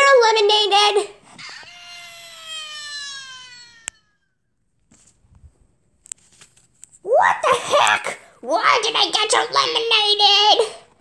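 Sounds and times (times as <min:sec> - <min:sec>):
paper rustling: 0:04.8 - 0:05.4, 0:06.0 - 0:07.0.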